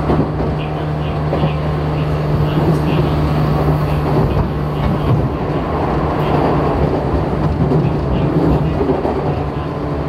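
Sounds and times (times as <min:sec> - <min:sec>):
electric train motors humming: 0:00.0 - 0:10.0
train wheels rumbling on rail: 0:00.0 - 0:10.0.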